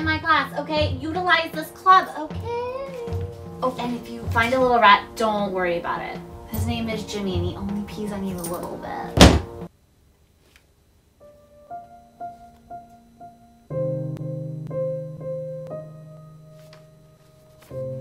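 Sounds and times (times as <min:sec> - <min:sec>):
piano music: 0:00.0 - 0:09.7, 0:11.2 - 0:18.0
sharp thump: 0:09.2 - 0:09.6.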